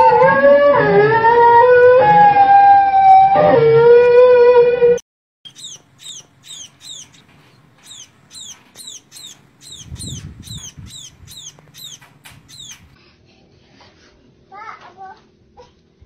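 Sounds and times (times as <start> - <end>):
young birds begging chirps: 5.5 - 13.0.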